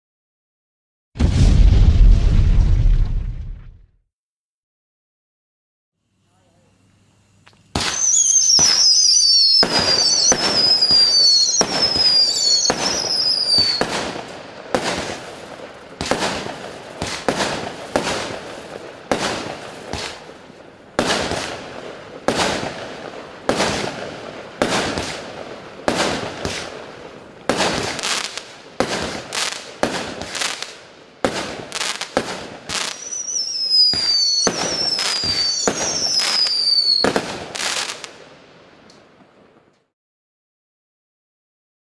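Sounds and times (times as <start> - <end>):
fireworks shots and bursts: 1.2 - 3.8, 7.7 - 38.3
falling firework whistles: 7.7 - 18.4, 27.5 - 38.1.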